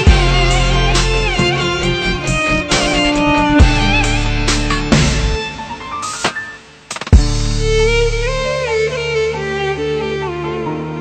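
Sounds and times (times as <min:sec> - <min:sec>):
sustained bass: 0:00.0 - 0:05.6, 0:07.2 - 0:08.6
violin melody with slides: 0:00.0 - 0:11.0
loud hit: 0:01.4 - 0:07.8.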